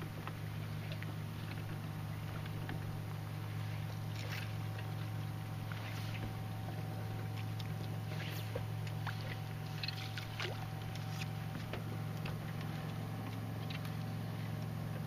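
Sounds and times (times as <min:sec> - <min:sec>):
boat motor humming: 0:00.0 - 0:15.0
water splashing against hull: 0:00.0 - 0:15.0.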